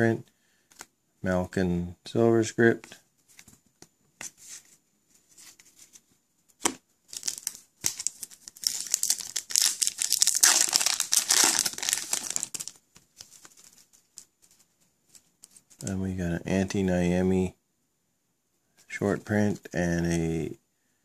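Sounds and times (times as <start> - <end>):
foil wrapper crinkling: 7.1 - 14.2.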